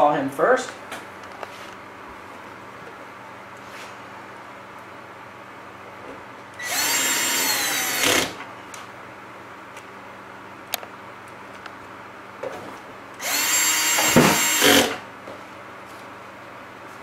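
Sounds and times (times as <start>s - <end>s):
cordless drill motor whine: 6.6s - 8.4s, 13.2s - 15.0s.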